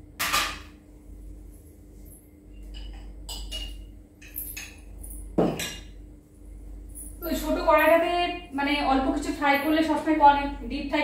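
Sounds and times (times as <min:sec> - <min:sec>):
metal cookware clinking: 0:02.7 - 0:05.9.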